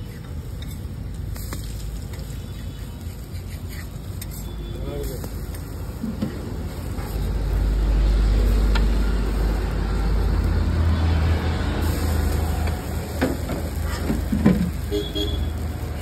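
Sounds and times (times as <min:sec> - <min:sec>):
spatula scraping a griddle: 0:00.0 - 0:04.7, 0:13.4 - 0:15.2
vehicle engine rumble: 0:00.0 - 0:16.0.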